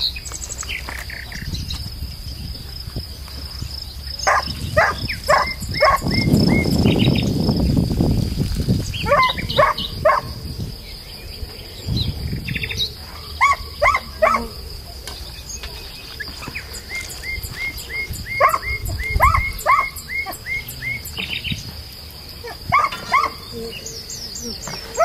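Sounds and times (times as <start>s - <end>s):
high-pitched insect drone: 0.0s - 25.0s
short chirping calls: 3.8s - 7.7s, 11.7s - 21.7s.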